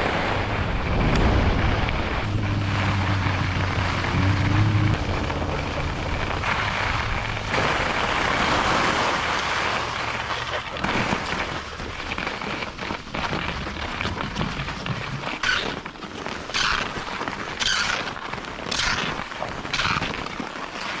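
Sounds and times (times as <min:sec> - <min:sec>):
wind on microphone: 0:00.0 - 0:10.2
skis scraping snow: 0:00.0 - 0:21.0
skis sliding over snow: 0:00.0 - 0:21.0.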